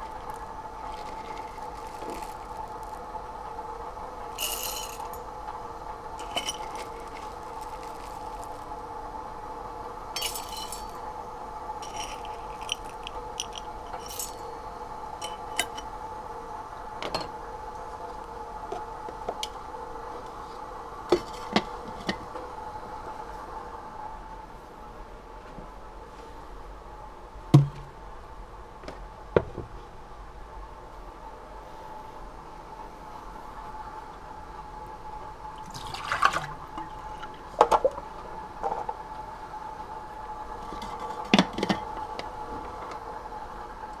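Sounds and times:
steady hum: 0.0s - 44.0s
glass and utensils clinking: 4.4s - 5.2s, 6.2s - 7.1s, 10.2s - 11.0s, 11.8s - 14.4s.

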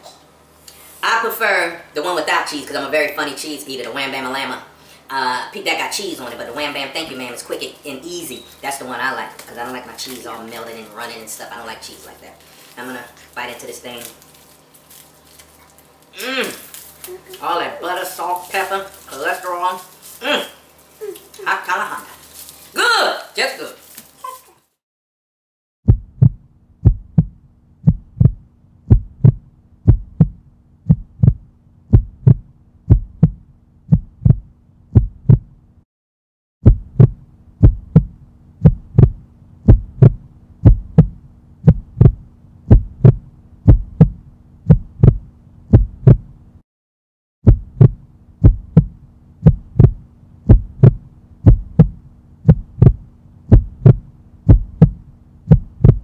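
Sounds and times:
heartbeat thumps: 25.9s - 35.6s, 36.6s - 46.4s, 47.4s - 56.0s
low hum: 25.9s - 35.8s, 36.6s - 46.6s, 47.5s - 56.0s.

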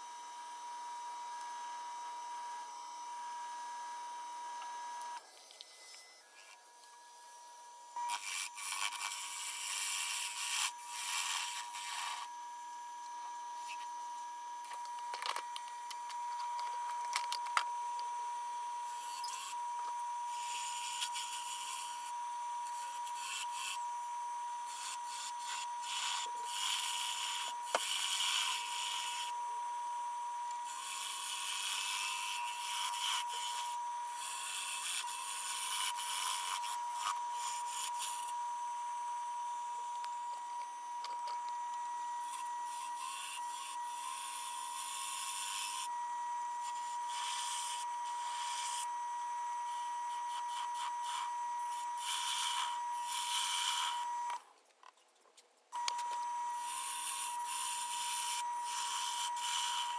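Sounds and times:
lathe high whine: 0.0s - 54.4s, 55.8s - 59.9s
gouge cutting wood hiss: 8.0s - 12.3s, 18.8s - 19.6s, 20.3s - 23.8s, 24.6s - 29.3s, 30.6s - 38.3s, 42.2s - 45.9s, 46.6s - 48.9s, 49.7s - 54.1s, 56.5s - 59.9s.

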